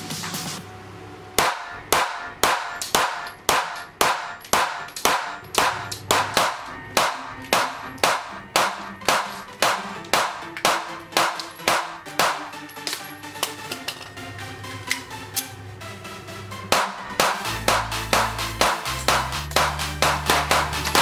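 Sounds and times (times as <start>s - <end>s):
music playing: 0.0s - 21.0s
rapid pistol shots: 1.4s - 13.0s, 16.7s - 21.0s.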